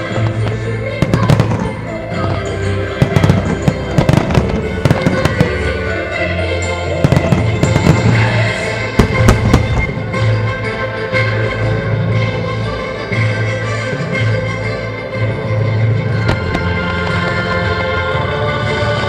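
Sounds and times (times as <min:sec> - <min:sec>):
music: 0:00.0 - 0:19.0
firework shells bursting: 0:16.3 - 0:17.0.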